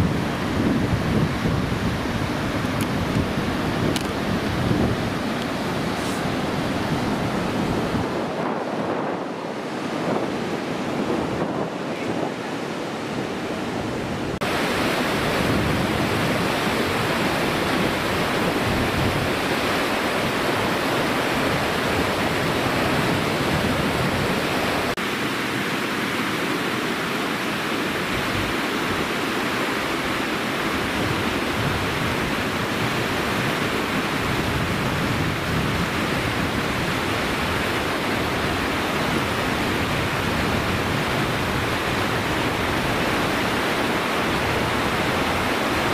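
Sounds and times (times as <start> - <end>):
rush of churning river water: 0.0 - 45.9.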